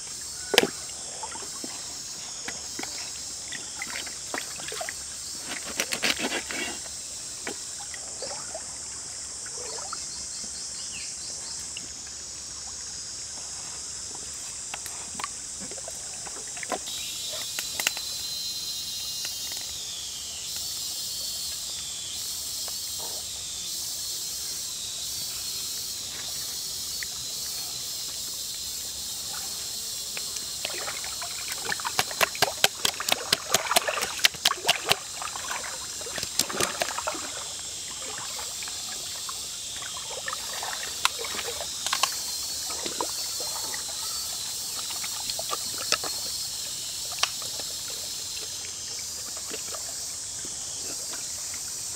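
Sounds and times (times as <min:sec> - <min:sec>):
insects calling: 0:00.0 - 0:51.9
trickling stream: 0:00.0 - 0:51.9
hands squelching marinade into meat: 0:30.6 - 0:37.1.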